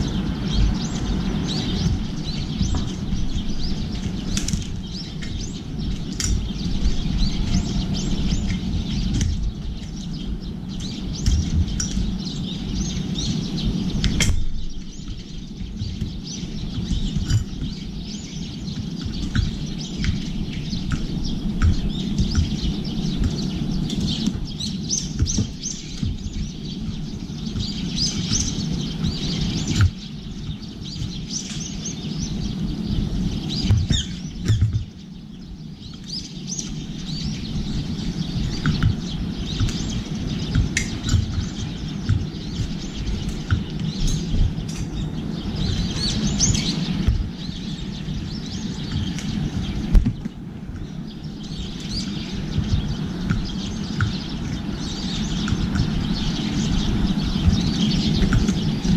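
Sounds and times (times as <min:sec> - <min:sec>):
low city hum: 0:00.0 - 0:58.9
small birds chirping: 0:00.0 - 0:58.9.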